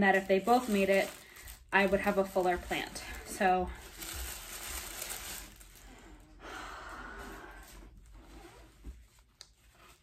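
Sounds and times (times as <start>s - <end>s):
packaging rustling: 0.0s - 6.2s.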